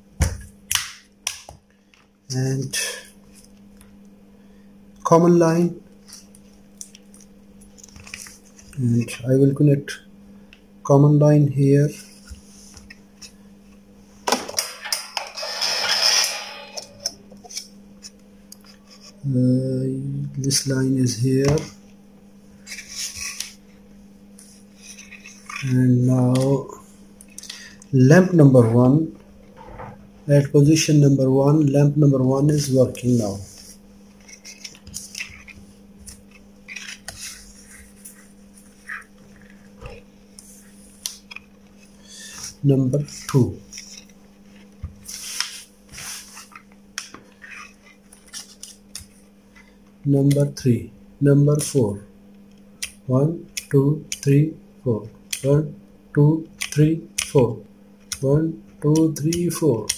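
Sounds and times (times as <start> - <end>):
steady low hum: 0.0 - 59.9
clicks and rustles of handling wires: 5.9 - 9.2, 32.5 - 50.6.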